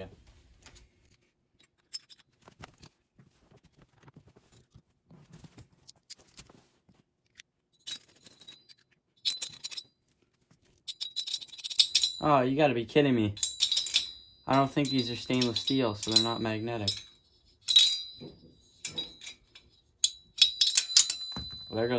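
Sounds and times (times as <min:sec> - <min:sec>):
jingling metal washers: 0:01.6 - 0:02.4, 0:07.7 - 0:10.0, 0:10.7 - 0:21.9
small metal clicks and clinks: 0:07.3 - 0:10.0, 0:10.8 - 0:12.2, 0:13.4 - 0:21.7.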